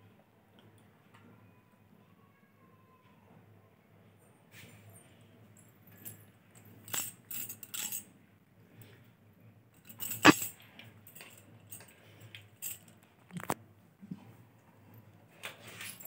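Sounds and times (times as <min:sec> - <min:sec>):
metal chain clinking and rattling: 0:04.7 - 0:08.2, 0:09.7 - 0:13.5, 0:14.9 - 0:16.0.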